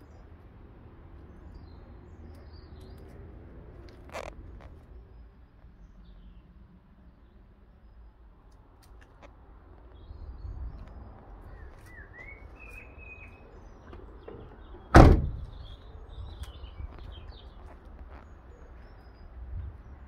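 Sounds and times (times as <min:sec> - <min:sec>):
van door slammed shut: 0:14.9 - 0:15.7.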